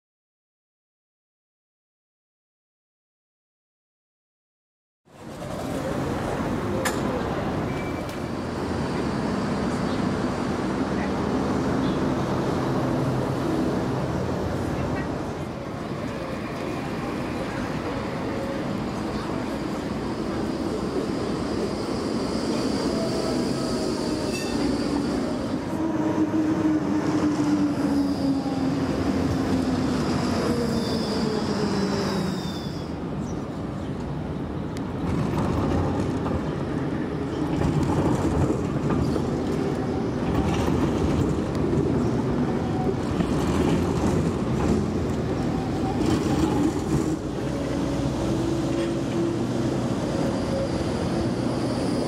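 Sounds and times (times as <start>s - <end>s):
wheels rumbling over rails: 5.2s - 52.0s
tram motor whine: 15.6s - 35.0s, 35.7s - 52.0s
high wheel squeal: 20.2s - 33.0s, 47.4s - 52.0s.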